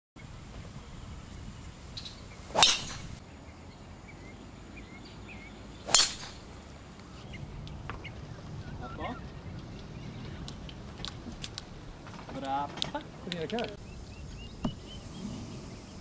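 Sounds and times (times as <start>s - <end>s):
golf club striking ball: 2.5s - 3.2s, 5.9s - 6.6s.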